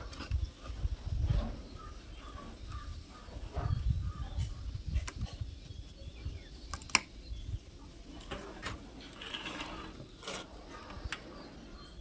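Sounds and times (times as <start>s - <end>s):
soft scratching on metal: 8.3s - 11.0s.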